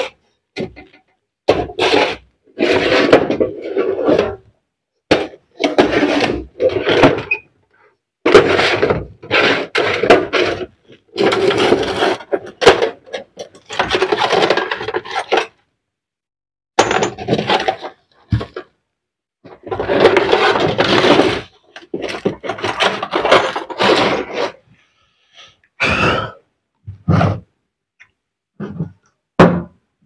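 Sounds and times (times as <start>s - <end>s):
metal tools clattering and scraping: 11.3s - 15.6s.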